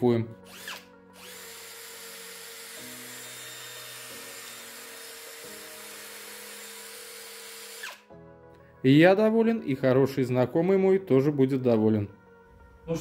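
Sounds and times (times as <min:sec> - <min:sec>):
cordless drill spinning: 0:00.5 - 0:08.1.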